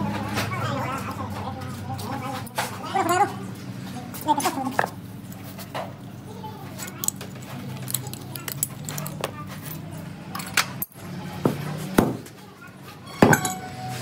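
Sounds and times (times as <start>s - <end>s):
metal tools clinking and knocking: 6.8s - 11.0s, 13.1s - 14.0s.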